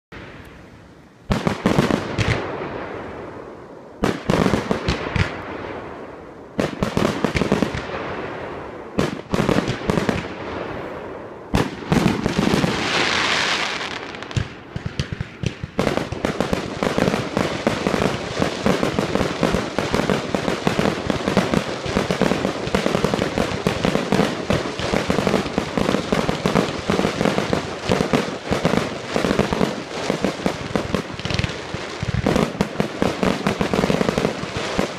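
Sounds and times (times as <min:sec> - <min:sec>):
fireworks crackling: 0:00.1 - 0:34.9
fireworks banging: 0:01.3 - 0:03.4, 0:04.0 - 0:34.9
firework hiss: 0:09.1 - 0:34.9.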